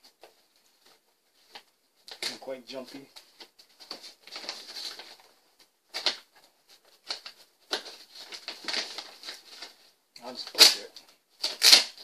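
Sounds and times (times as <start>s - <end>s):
knife scraping packing tape: 11.4s - 12.0s.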